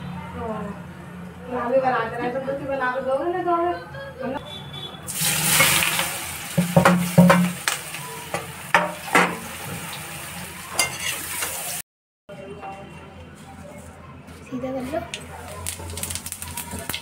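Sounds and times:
greens sizzling in hot oil: 0:05.1 - 0:11.8, 0:15.4 - 0:17.0
metal spatula scraping a pan: 0:10.8 - 0:11.7.

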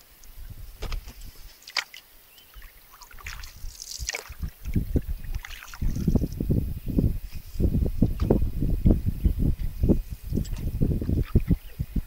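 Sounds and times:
paddle splashing in water: 0:00.8 - 0:06.2
water dripping and trickling: 0:01.6 - 0:06.5.

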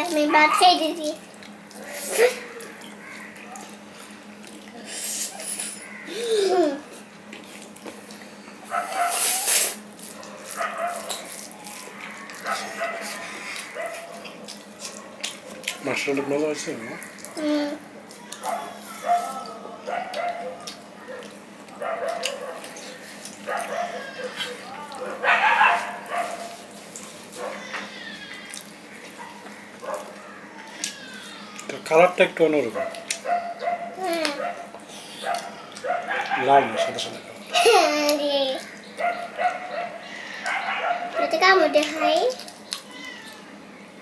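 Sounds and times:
wet smacking and chewing: 0:01.2 - 0:05.4, 0:06.9 - 0:31.8, 0:32.8 - 0:37.0, 0:41.8 - 0:43.5
chewing and sucking: 0:01.3 - 0:05.6, 0:06.9 - 0:15.9, 0:34.1 - 0:36.3
loud wet slurp: 0:08.9 - 0:10.2.

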